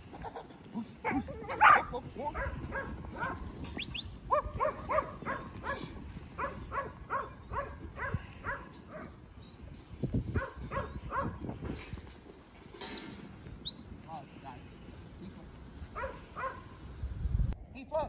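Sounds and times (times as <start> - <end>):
dog barking sharply: 4.3 - 8.6, 10.4 - 11.4, 16.0 - 16.6.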